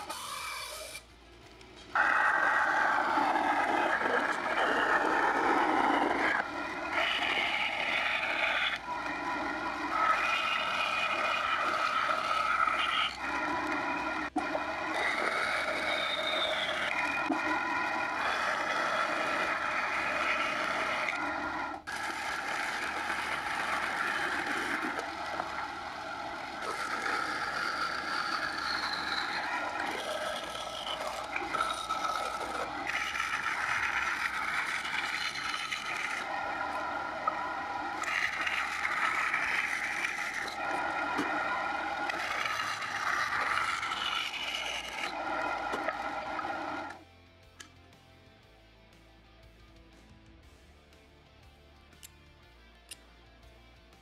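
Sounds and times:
bandsaw rasping through wood: 2.0 - 13.5, 14.9 - 17.6, 26.4 - 37.4, 38.0 - 46.1.

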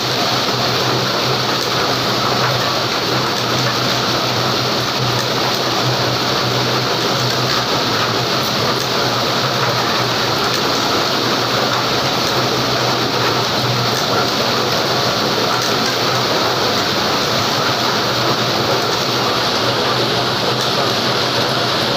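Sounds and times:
treadmill whirring: 0.0 - 21.9.

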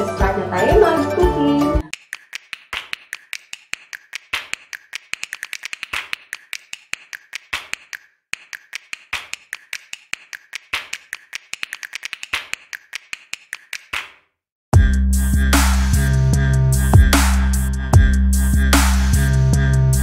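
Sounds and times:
rapid sharp clicks and taps: 1.9 - 14.2.

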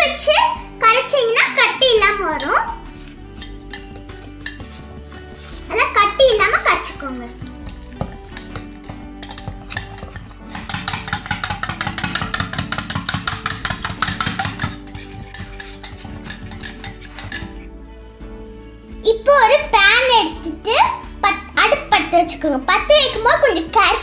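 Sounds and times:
spoon stirring in metal bowl: 2.3 - 17.7.

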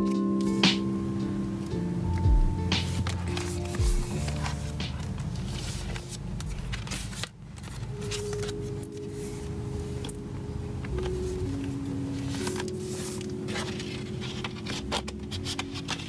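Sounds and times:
soft background music: 0.0 - 16.0
paper pages rustling and flipping: 2.8 - 10.2, 10.8 - 16.0.

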